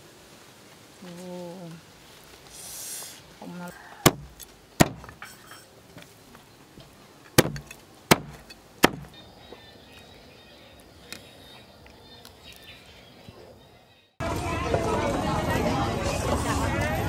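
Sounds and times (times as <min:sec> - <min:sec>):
cleaver chopping on wooden block: 0:04.0 - 0:05.2, 0:07.4 - 0:09.2.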